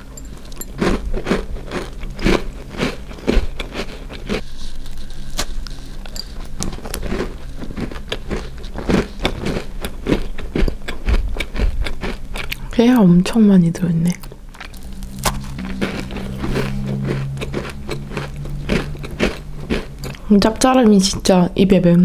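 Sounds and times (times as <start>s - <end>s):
crunchy cookie chewing: 0.0s - 13.0s, 14.0s - 21.3s.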